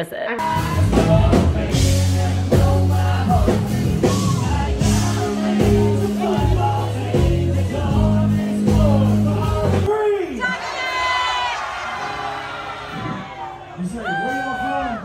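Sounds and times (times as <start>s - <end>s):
held bass notes: 0.3s - 9.9s
person singing: 0.4s - 9.9s.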